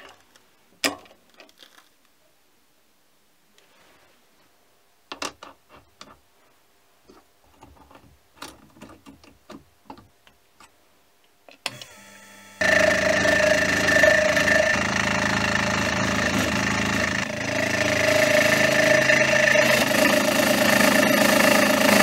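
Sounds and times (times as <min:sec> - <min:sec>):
low hum: 0:11.7 - 0:20.7
milling machine spindle running: 0:11.7 - 0:22.0.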